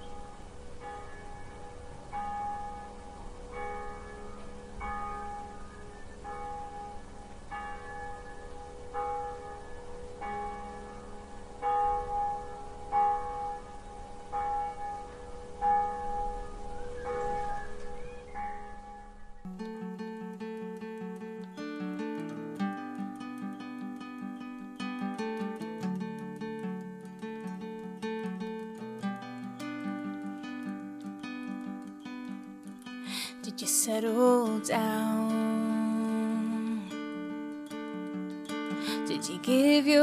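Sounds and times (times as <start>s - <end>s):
church bell tolling: 0.0s - 19.5s.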